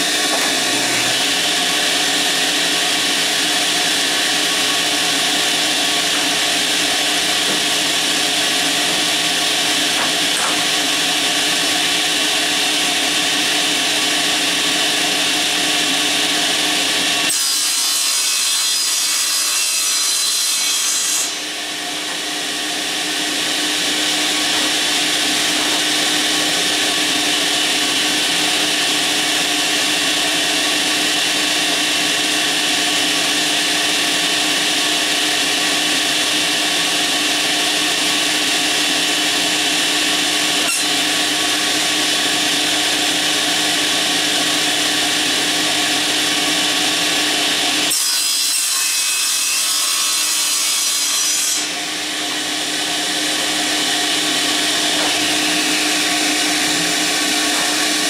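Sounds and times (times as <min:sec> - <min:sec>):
table saw motor hum: 0:00.0 - 0:17.4, 0:21.2 - 0:48.2, 0:51.5 - 0:58.0
saw winding down: 0:51.6 - 0:58.0.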